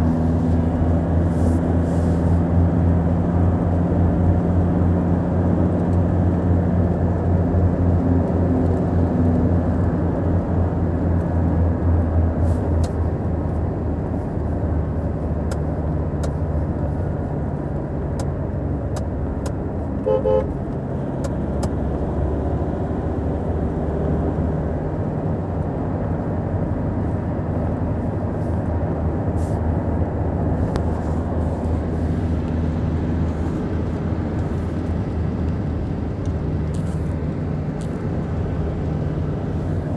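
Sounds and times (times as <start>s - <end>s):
car engine and tyres droning: 0.0s - 39.9s
car horn toot: 20.0s - 20.6s.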